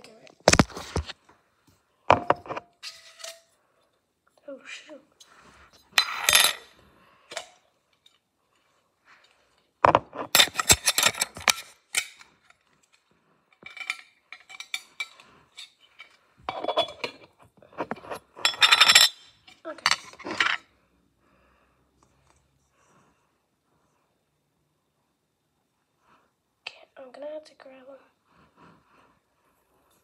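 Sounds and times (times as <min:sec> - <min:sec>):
glass jar clinking: 0:16.4 - 0:17.2.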